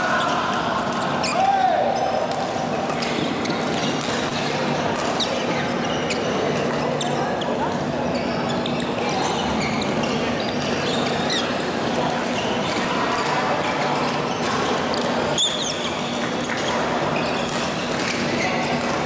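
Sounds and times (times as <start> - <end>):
murmur of voices: 0.0 - 19.0
shoe squeaks on court floor: 0.1 - 19.0
racket hitting shuttlecock: 2.1 - 5.3, 14.4 - 19.0.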